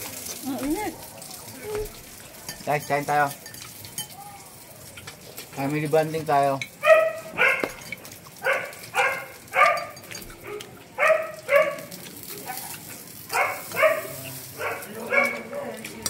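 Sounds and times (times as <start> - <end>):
dog barking: 6.8 - 7.8, 8.4 - 15.8.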